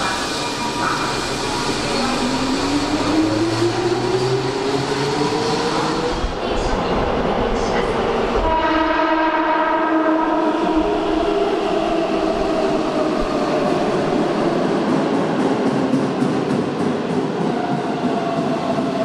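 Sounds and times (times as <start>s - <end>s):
train cars rumbling: 0.0s - 19.0s
train horn blast: 8.4s - 10.9s.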